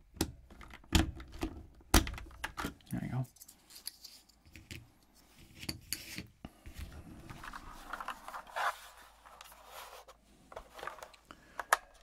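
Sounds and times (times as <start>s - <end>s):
plastic scraping and rubbing: 7.2s - 11.2s.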